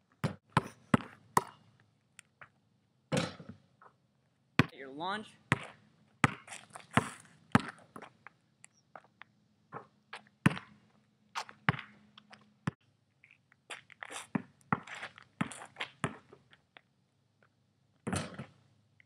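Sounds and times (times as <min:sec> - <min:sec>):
basketball bouncing on pavement: 0:00.2 - 0:01.6, 0:05.5 - 0:08.2, 0:09.7 - 0:10.8, 0:11.4 - 0:12.0, 0:14.3 - 0:16.4, 0:18.1 - 0:18.6.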